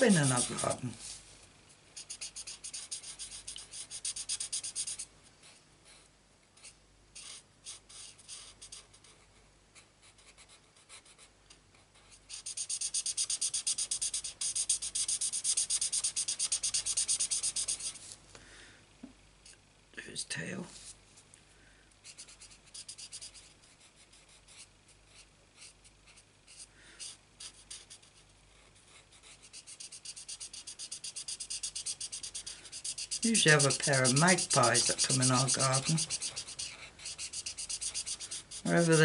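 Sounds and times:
marker pen scratching on card: 0.0 - 0.8, 2.0 - 5.0, 12.2 - 18.0, 22.1 - 28.2, 28.8 - 39.0.

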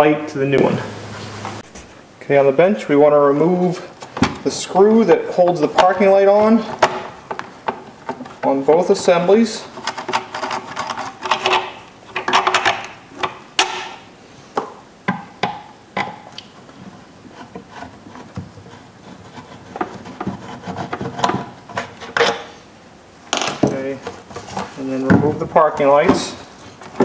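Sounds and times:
plastic scraping: 16.8 - 22.6, 23.6 - 27.0.

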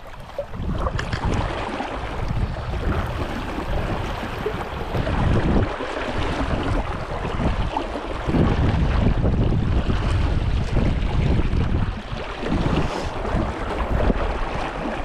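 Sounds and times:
brook water rushing: 0.0 - 15.0
wind buffeting microphone: 0.0 - 15.0.

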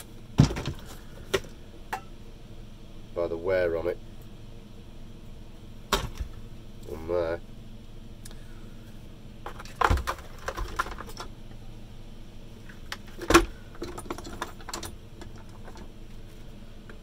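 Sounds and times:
plastic parts clicking and rattling: 9.5 - 11.3, 12.7 - 15.9.

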